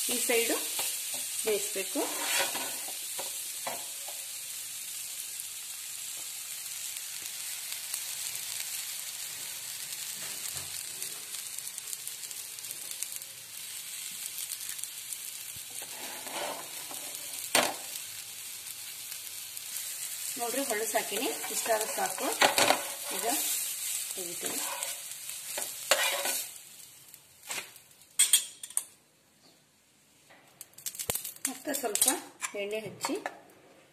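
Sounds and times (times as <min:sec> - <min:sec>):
omelette sizzling in oil: 0:00.0 - 0:28.6
metal spatula scraping: 0:00.4 - 0:03.0, 0:15.7 - 0:17.5, 0:20.5 - 0:26.6.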